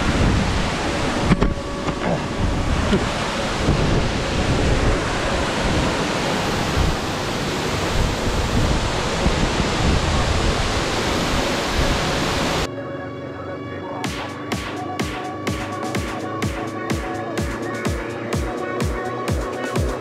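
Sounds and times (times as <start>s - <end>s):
waterfall rushing: 0.0s - 12.7s
music: 12.7s - 20.0s.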